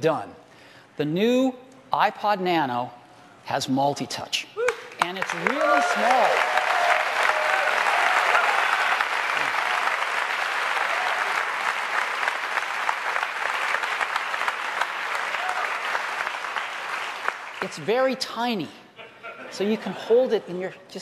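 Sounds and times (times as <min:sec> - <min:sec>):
large audience applauding: 0:04.6 - 0:17.9
audience cheering: 0:04.7 - 0:17.5.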